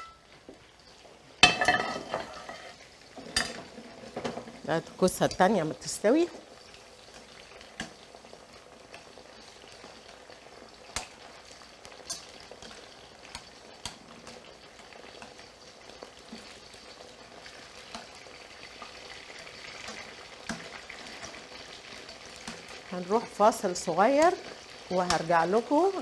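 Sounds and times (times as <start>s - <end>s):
vegetables sizzling in oil: 0.0s - 26.0s
metal tongs clicking on pan: 10.9s - 11.2s, 11.8s - 14.0s, 17.8s - 18.2s, 19.7s - 21.4s, 22.2s - 22.8s.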